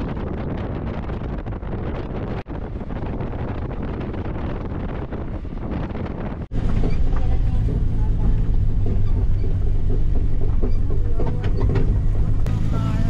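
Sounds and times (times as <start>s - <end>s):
wind on microphone: 0.0s - 12.5s
vehicle engine running: 5.7s - 13.0s.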